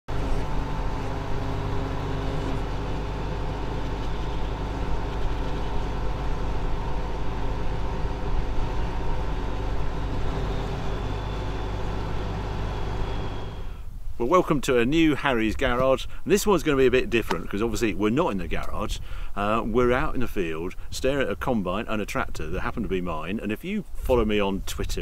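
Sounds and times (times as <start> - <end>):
combine harvester diesel engine running: 0.1 - 17.8.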